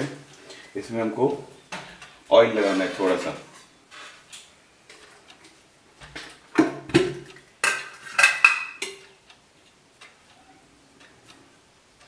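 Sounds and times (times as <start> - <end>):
metal utensils clinking: 7.6 - 9.0.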